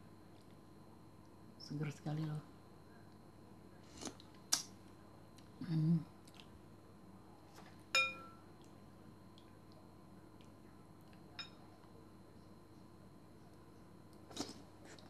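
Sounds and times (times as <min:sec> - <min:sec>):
spoon clinking on ceramic bowl: 0:08.0 - 0:08.4, 0:11.4 - 0:11.6.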